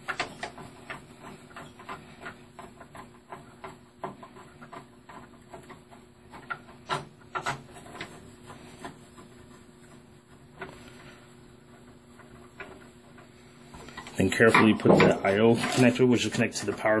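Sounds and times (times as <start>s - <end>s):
computer parts clicking and tapping: 0.0s - 8.6s.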